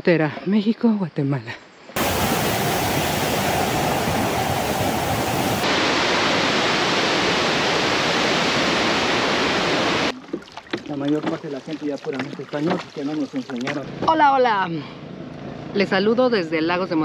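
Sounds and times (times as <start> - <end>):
waterfall rushing: 2.0 - 10.1.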